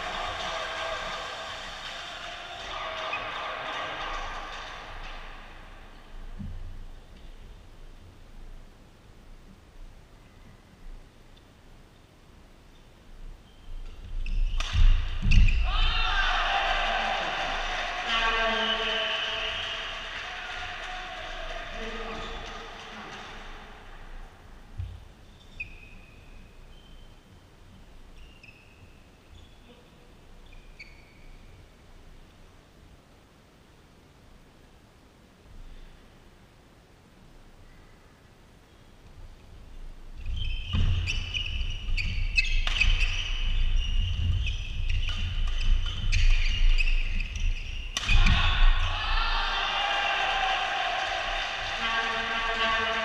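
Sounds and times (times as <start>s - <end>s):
low hall rumble: 0.0s - 10.2s
shoes squeaking on court floor: 12.7s - 15.7s, 24.8s - 27.2s, 30.4s - 31.3s, 40.2s - 48.4s
rackets striking shuttlecock: 14.6s - 15.4s, 47.9s - 48.4s.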